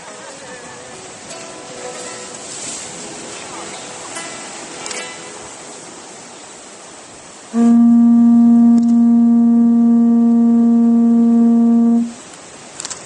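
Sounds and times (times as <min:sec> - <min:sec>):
conch shell trumpet note: 0:07.6 - 0:12.2.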